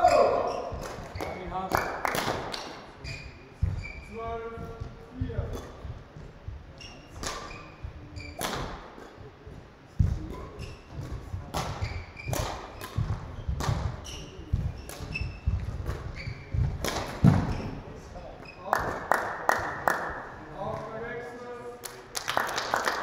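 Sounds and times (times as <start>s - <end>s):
racket striking shuttlecock: 0.0s - 1.4s, 8.3s - 9.1s, 10.0s - 17.6s
shoe squeaks on court floor: 0.0s - 1.5s, 3.0s - 5.8s, 6.7s - 8.8s, 10.1s - 18.7s
thudding footsteps: 2.9s - 18.0s.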